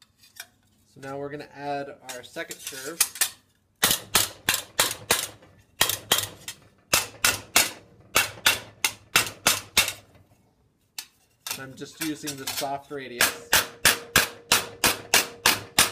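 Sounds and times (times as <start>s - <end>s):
rubber mallet striking steel sheet: 3.8s - 10.0s, 13.2s - 15.9s.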